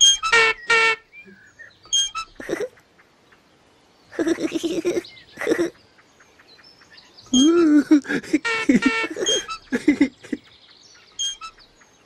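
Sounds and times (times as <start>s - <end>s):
faint bird chirps: 0.0s - 12.0s
high-pitched childlike babbling: 7.3s - 8.0s.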